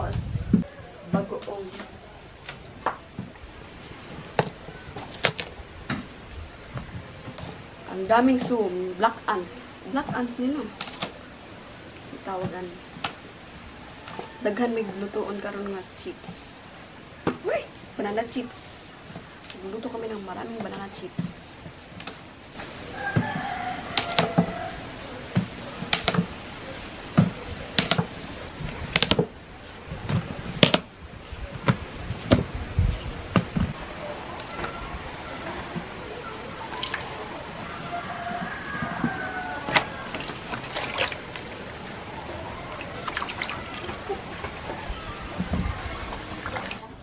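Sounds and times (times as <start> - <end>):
bananas splashed in water: 36.6 - 37.2, 39.6 - 42.0, 42.6 - 44.6.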